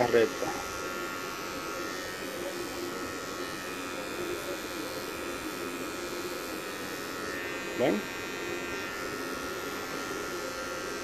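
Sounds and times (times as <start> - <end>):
electric hair clipper buzzing: 0.0 - 11.0.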